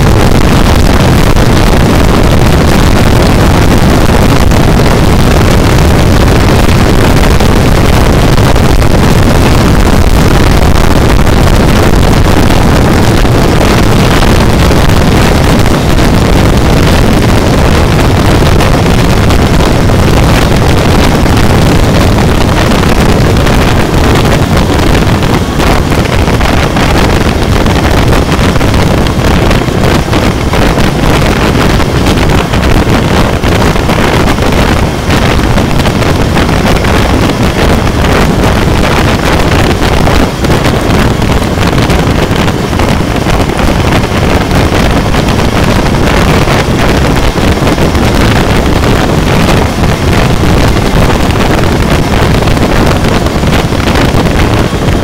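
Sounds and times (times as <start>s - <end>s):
motorcycle engine: 0.0s - 52.2s
road noise: 0.0s - 55.0s
wind rush on microphone: 0.0s - 55.0s.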